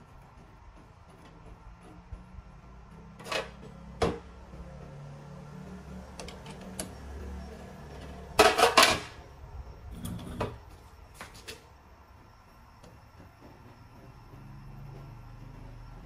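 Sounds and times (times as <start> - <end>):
metal clanks and rattles: 8.0 - 9.2.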